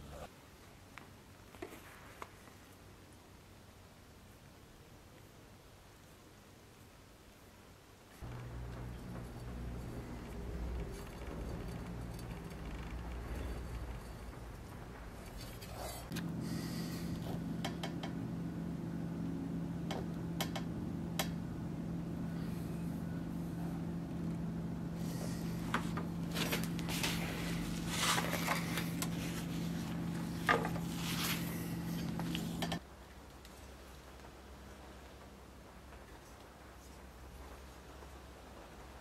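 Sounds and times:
low hum: 8.2 - 32.8.

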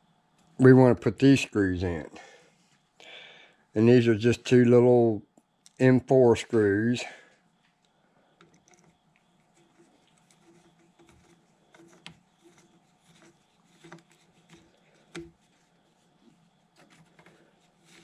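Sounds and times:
screwdriver clicking and scraping metal: 9.6 - 15.4.

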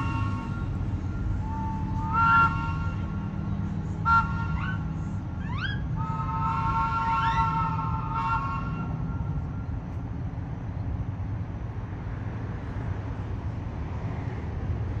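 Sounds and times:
rising whistle sweep: 0.0 - 3.3, 5.5 - 9.0
trolley whistle chord: 0.0 - 9.7
streetcar rumbling: 0.0 - 15.0.

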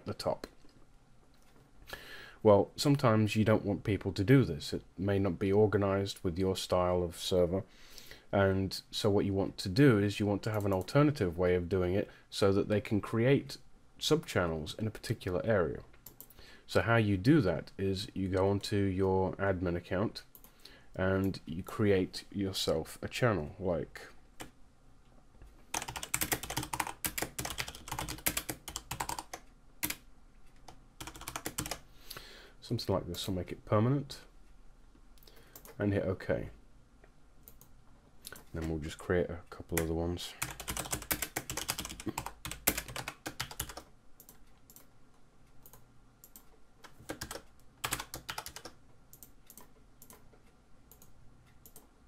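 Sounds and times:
computer keyboard typing: 25.7 - 30.0, 30.6 - 31.8, 39.8 - 44.9, 45.6 - 50.2.

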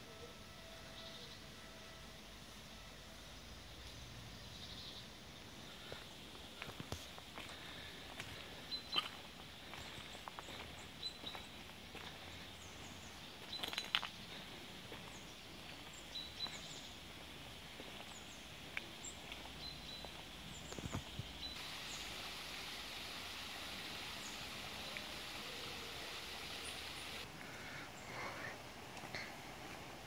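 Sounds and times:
footsteps on stone paving: 5.8 - 21.6
steady hiss: 16.6 - 30.0.

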